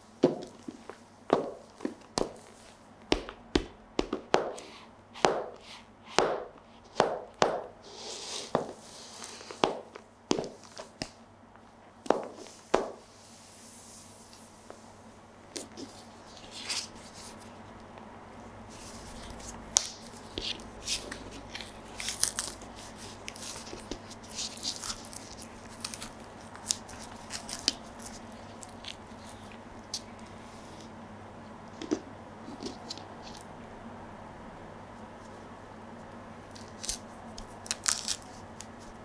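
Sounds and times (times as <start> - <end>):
banana peel tearing: 36.6 - 38.9.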